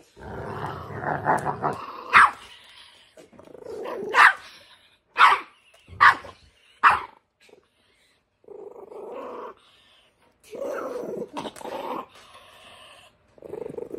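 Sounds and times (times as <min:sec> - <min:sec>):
dogs growling: 0:00.0 - 0:13.9
dogs barking: 0:02.0 - 0:02.5, 0:04.0 - 0:04.5, 0:05.2 - 0:07.2.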